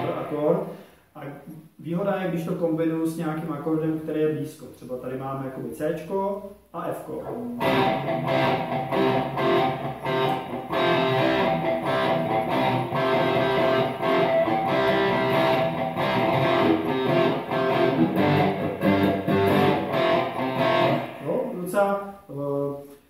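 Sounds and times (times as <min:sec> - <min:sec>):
electric guitar power chords: 0:07.6 - 0:21.2.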